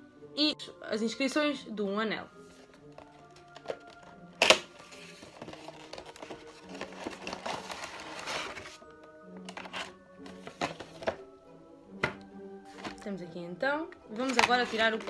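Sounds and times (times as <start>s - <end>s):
soft background music: 0.0s - 15.0s
cardboard and plastic rustling: 2.5s - 11.2s, 12.0s - 13.1s, 14.2s - 15.0s.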